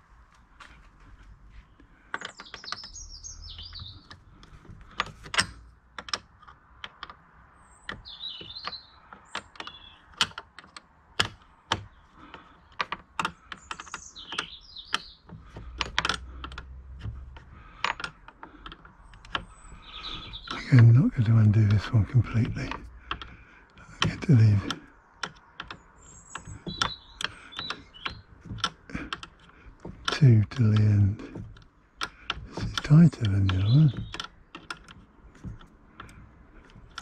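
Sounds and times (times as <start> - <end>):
birds chirping: 0.0 - 37.0
spanner metallic clicks: 24.0 - 37.0.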